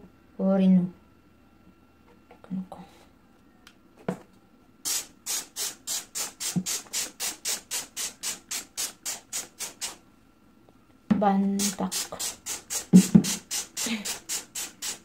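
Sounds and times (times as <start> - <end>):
spray bottle hissing sprays: 4.9 - 10.0, 11.6 - 15.0.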